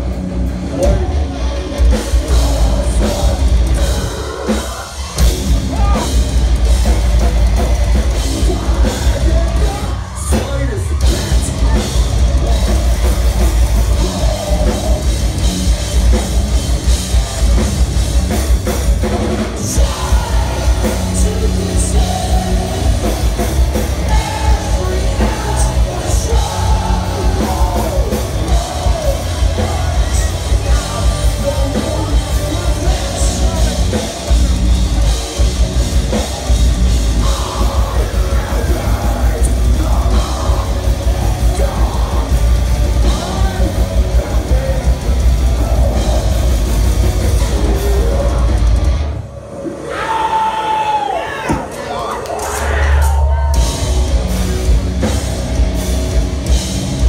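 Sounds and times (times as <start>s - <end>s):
distorted guitars and bass: 0.0s - 57.0s
pounding drum kit: 0.0s - 57.0s
person singing and screaming: 3.1s - 6.2s, 49.8s - 54.1s.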